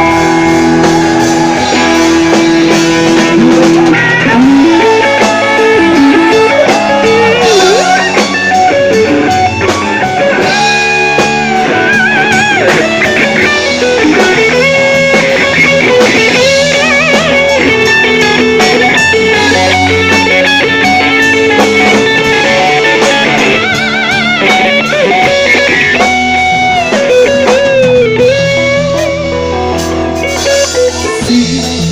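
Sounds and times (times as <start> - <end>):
electric guitar lead with vibrato: 0.0 - 31.9
live rock band: 0.0 - 31.9.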